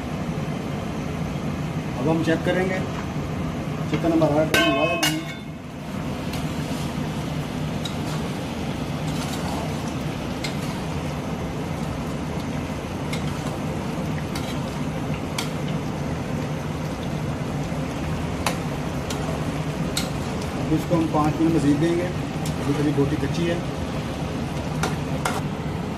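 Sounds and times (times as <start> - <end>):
metal spatula clinking on pot: 4.5 - 5.6
gravy bubbling in a pot: 5.6 - 25.9.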